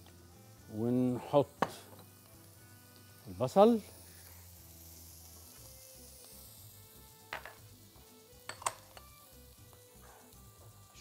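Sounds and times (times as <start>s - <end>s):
onion sizzling in oil: 0.0s - 11.0s.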